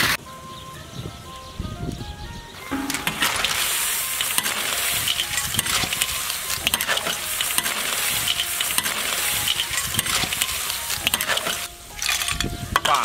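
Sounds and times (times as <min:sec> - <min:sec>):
food sizzling in a wok: 0:02.7 - 0:12.4
metal ladle clicking on wok: 0:02.7 - 0:12.9.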